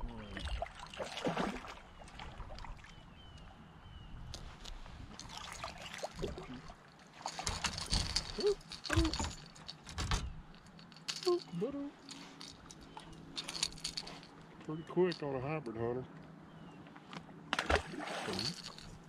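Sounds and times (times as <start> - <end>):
water lapping at boat hull: 0.0 - 10.5, 17.5 - 19.0
splashing and rattling: 0.4 - 2.9, 4.4 - 14.4, 17.5 - 19.0.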